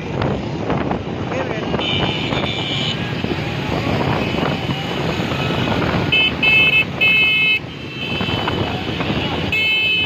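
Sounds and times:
road traffic engines: 0.0s - 10.0s
vehicle horn honking: 1.7s - 3.1s, 5.3s - 10.0s.

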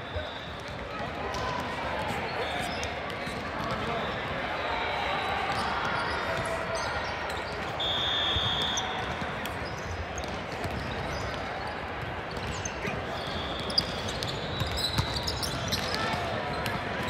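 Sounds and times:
sports hall noise: 0.0s - 17.0s
balls bouncing and thudding: 10.2s - 12.7s.

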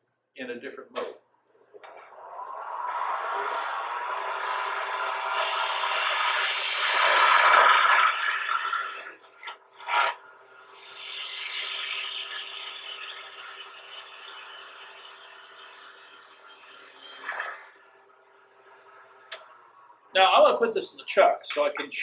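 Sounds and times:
lathe humming: 2.9s - 9.2s
chisel cutting wood on lathe: 3.3s - 17.8s.

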